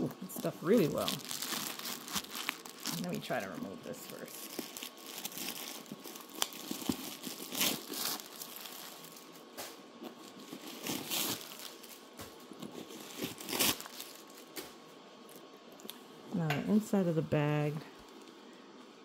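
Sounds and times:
packing stuffing crinkling: 0.0s - 14.6s.

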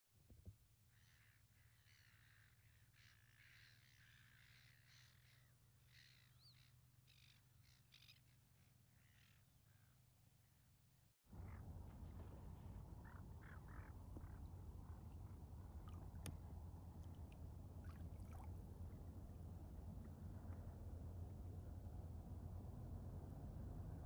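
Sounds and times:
low steady hum: 11.3s - 24.0s.

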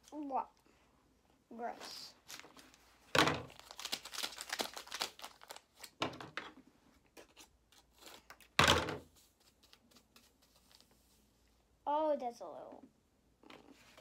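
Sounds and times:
packet crinkling: 3.4s - 6.0s.

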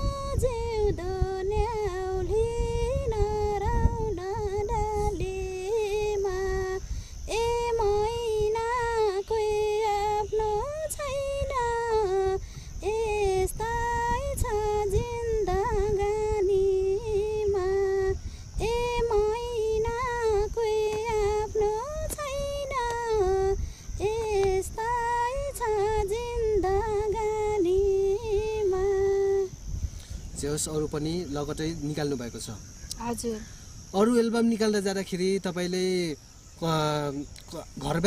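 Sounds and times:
woman singing unaccompanied: 0.0s - 29.7s.

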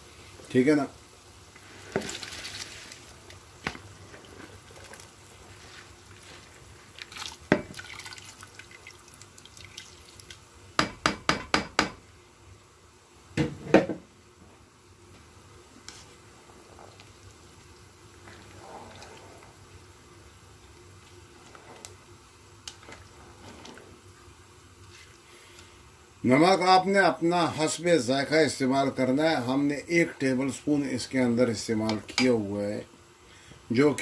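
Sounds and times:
rice poured into boiling liquid: 0.0s - 10.8s, 14.5s - 32.8s
bowl knocking on pot: 7.5s - 7.8s, 10.8s - 12.0s.

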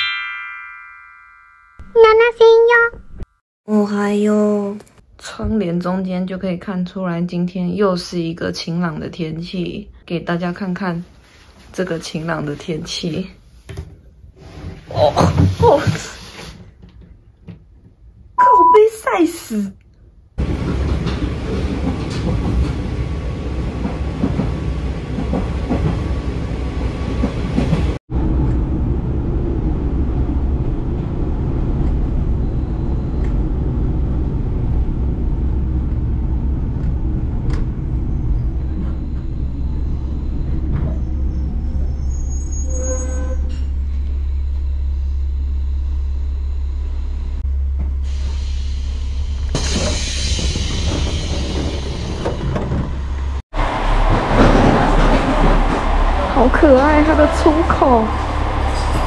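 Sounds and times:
train rumbling: 20.2s - 59.0s
short squealing tone: 38.8s - 43.8s.

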